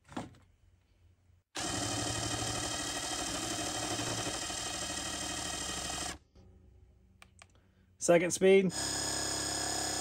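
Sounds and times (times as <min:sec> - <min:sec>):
impact wrench motor whine: 0:01.6 - 0:06.2, 0:08.7 - 0:10.0.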